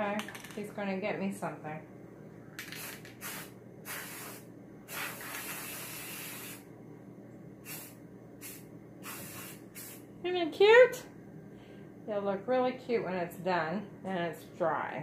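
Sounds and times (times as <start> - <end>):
spray paint can hissing: 2.6 - 6.6, 7.7 - 10.0.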